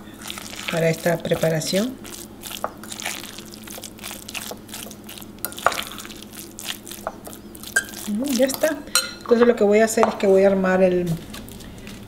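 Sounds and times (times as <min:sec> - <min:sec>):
fork mashing tuna in glass bowl: 0:00.3 - 0:08.8
fork tapping glass bowl: 0:07.8 - 0:09.3.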